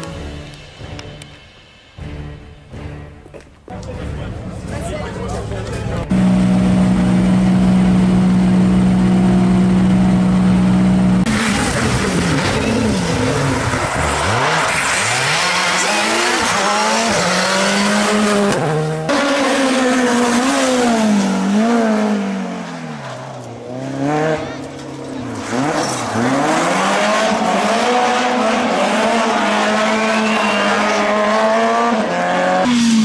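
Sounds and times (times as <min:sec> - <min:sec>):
rally car engine revving: 0:04.3 - 0:33.0
engine held at high revs: 0:06.1 - 0:22.6, 0:25.4 - 0:33.0
rally car accelerating through gears: 0:06.1 - 0:33.0.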